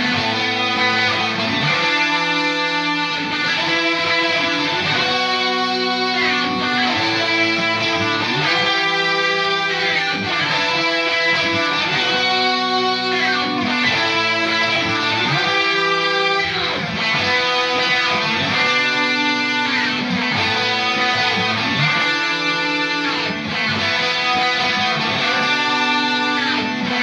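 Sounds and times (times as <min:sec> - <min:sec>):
guitar instrumental music: 0:00.0 - 0:27.0.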